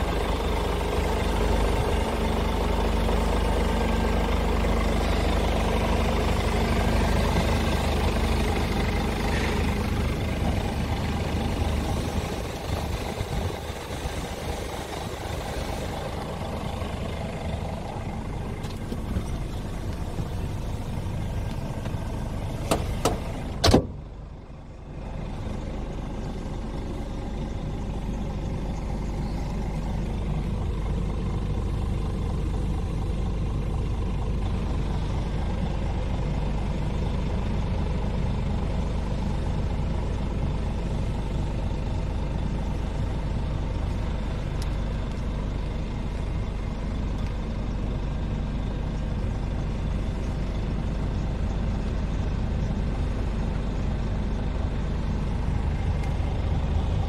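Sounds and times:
diesel truck engine idling: 0.0s - 57.0s.

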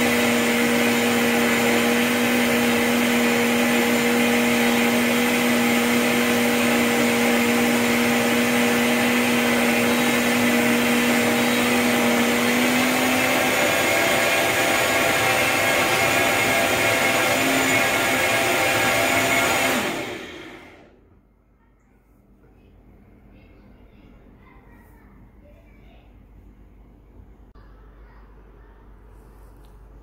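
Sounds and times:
blender motor running: 0.0s - 21.0s.

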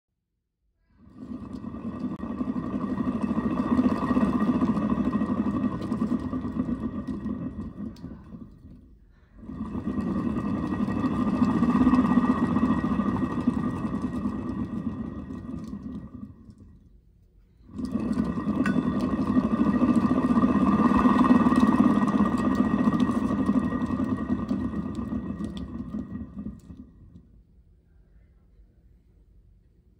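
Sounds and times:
pulley whirring on bearings: 0.8s - 27.6s.

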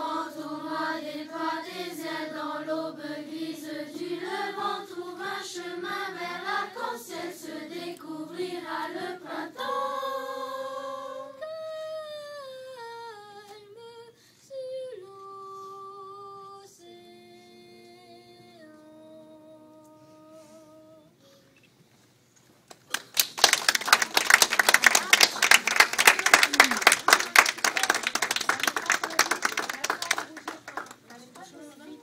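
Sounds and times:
children's choir singing: 0.0s - 11.5s
audience applauding: 22.7s - 31.4s.

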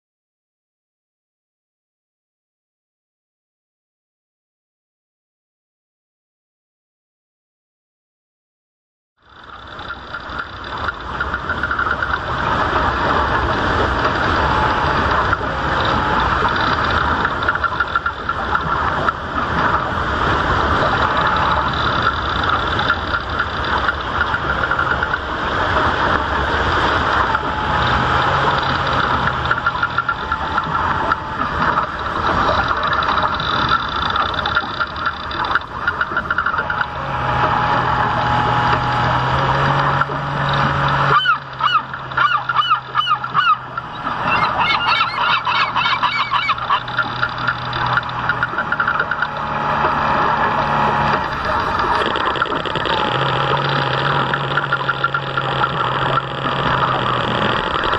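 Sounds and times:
model boat motor hum: 9.2s - 57.9s
geese honking and gabbling: 41.0s - 49.3s.

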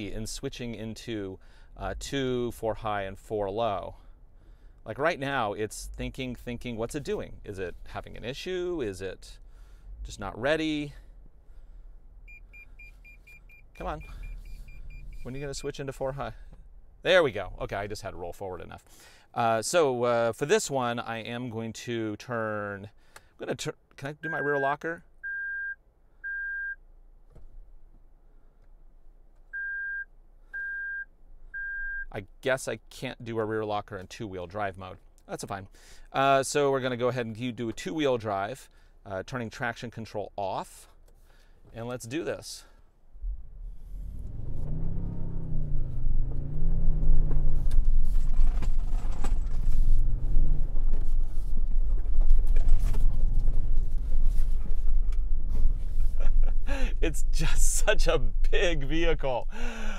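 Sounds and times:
short high warning beeps: 12.3s - 15.7s, 24.2s - 26.8s, 29.6s - 32.1s
engine revving: 43.2s - 47.9s.

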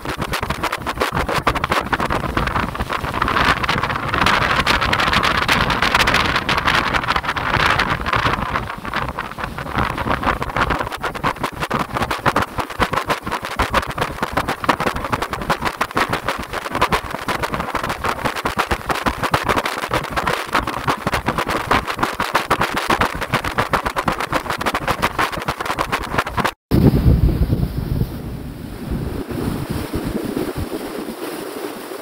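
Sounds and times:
speedboat engine: 0.0s - 22.7s
wind buffeting microphone: 0.0s - 32.0s.

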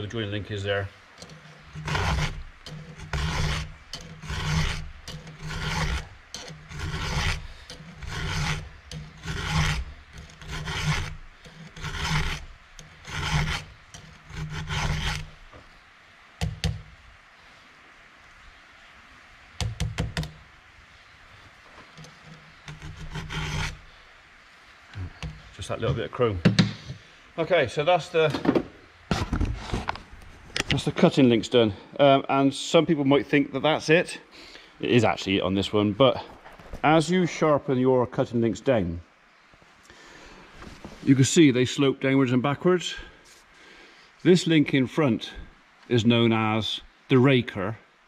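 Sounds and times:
file rasping on chainsaw chain: 1.2s - 15.4s, 22.0s - 23.9s.

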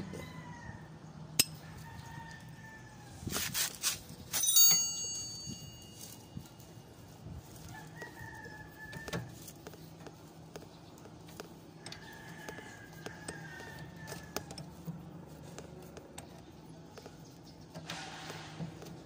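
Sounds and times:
socket tool metallic clicks: 1.4s - 1.6s.

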